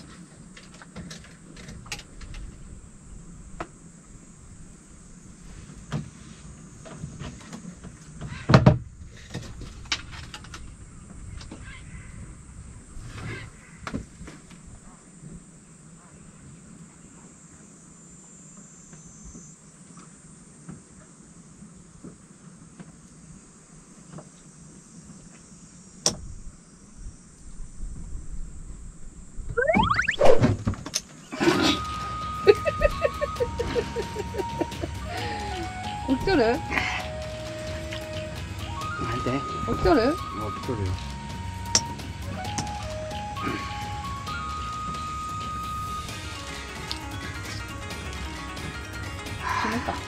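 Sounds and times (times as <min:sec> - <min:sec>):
high-pitched insect drone: 0:31.8 - 0:42.1.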